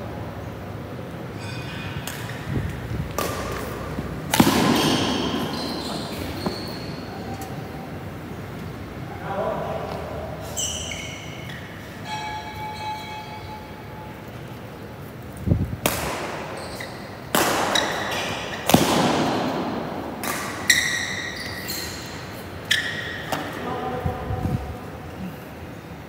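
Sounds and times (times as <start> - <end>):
shoes squeaking on court: 1.4 - 8.0, 10.4 - 13.2, 16.3 - 18.8, 20.2 - 23.8
racket hitting shuttlecock: 2.0 - 7.6, 15.8 - 23.6.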